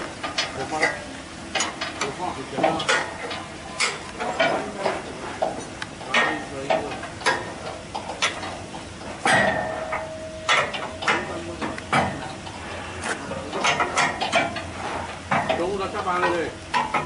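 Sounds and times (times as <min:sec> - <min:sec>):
wrench clicking and clanking on metal: 0:00.2 - 0:08.6.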